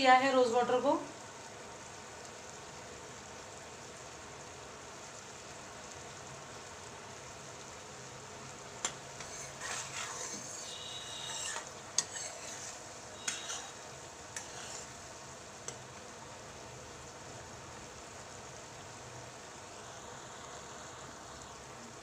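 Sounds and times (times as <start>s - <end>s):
syrup bubbling: 5.2s - 17.5s
spoon scraping a pan: 9.2s - 15.1s
spoon squeak: 9.3s - 13.8s.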